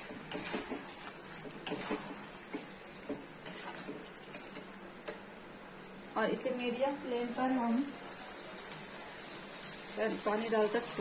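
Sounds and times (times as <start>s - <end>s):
spatula scraping a metal pan: 0.2s - 2.2s, 3.4s - 4.6s.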